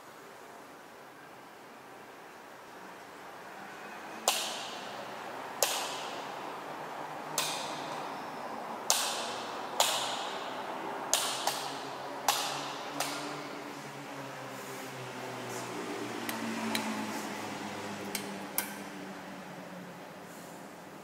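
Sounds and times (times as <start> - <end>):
light switches clicking with echo: 4.2 - 4.8, 5.6 - 6.2, 7.4 - 8.0, 8.8 - 13.4, 18.1 - 18.9.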